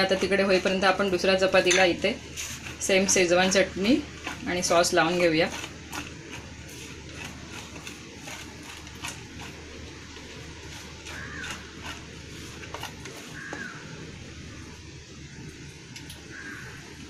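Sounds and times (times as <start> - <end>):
metal spoon tapping and scraping: 0.0 - 3.3
steady low hum: 0.0 - 17.0.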